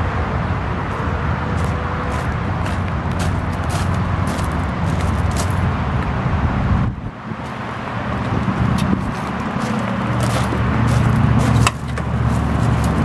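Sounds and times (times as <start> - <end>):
truck engine idling: 0.0 - 13.0
hood clunks: 8.2 - 13.0.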